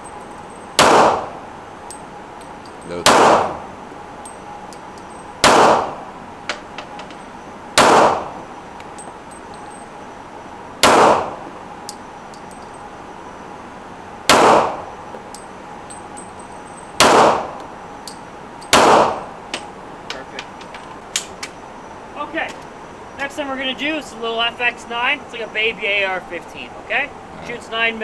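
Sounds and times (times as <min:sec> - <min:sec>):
pistol shots echoing: 0:00.8 - 0:01.4, 0:02.9 - 0:03.6, 0:05.4 - 0:06.0, 0:07.8 - 0:08.4, 0:10.8 - 0:11.4, 0:14.3 - 0:14.9, 0:17.0 - 0:17.6, 0:18.7 - 0:19.3.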